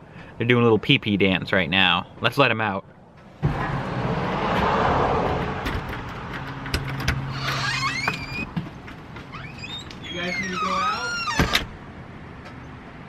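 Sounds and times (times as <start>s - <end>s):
sharp clicks and knocks: 4.5s - 10.0s
footsteps on wooden porch: 4.5s - 11.7s
door opening: 5.2s - 11.8s.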